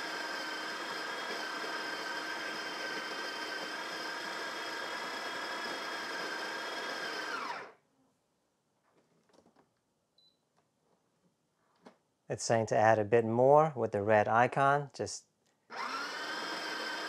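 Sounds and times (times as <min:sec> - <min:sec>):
coffee grinder grinding beans: 0:00.0 - 0:07.8, 0:15.7 - 0:17.0.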